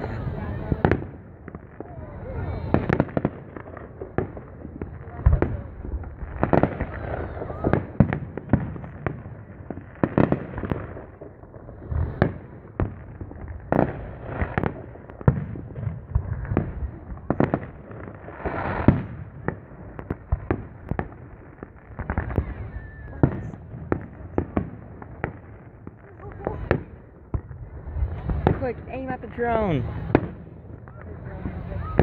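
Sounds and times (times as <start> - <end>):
fireworks booming and cracking: 0.0 - 32.0
firework hiss: 11.8 - 12.5, 18.0 - 23.6.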